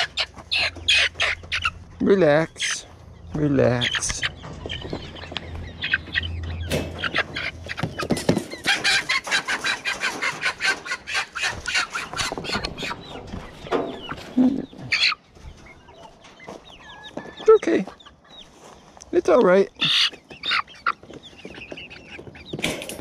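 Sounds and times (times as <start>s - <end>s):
chickens clucking and squawking: 0.0s - 23.0s.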